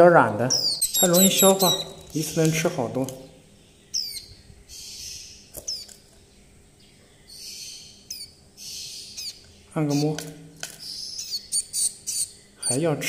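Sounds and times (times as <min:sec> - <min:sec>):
chick giving high chirps: 0:00.4 - 0:02.6, 0:03.8 - 0:06.0, 0:07.3 - 0:12.8.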